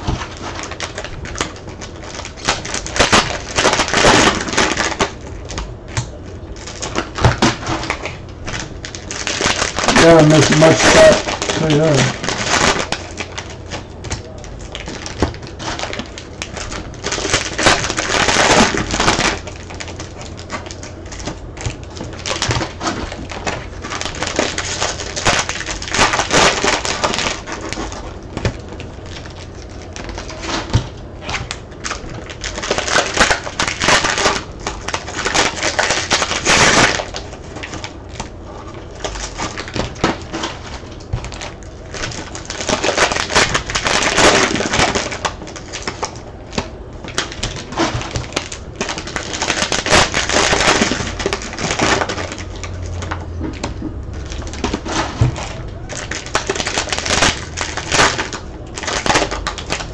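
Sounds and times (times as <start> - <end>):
wrappers crinkling and tearing: 0.0 - 59.9
cards riffled and shuffled: 9.1 - 19.4.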